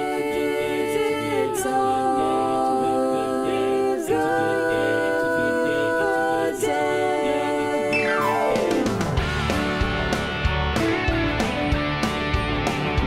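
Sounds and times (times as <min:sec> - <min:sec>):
a cappella voices singing harmony: 0:00.0 - 0:09.2.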